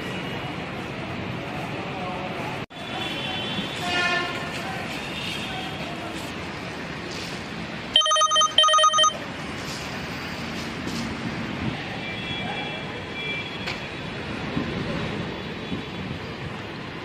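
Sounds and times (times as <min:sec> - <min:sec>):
site work noise: 0:00.0 - 0:12.2
vehicles: 0:00.0 - 0:17.0
short loud beeps: 0:08.0 - 0:09.2.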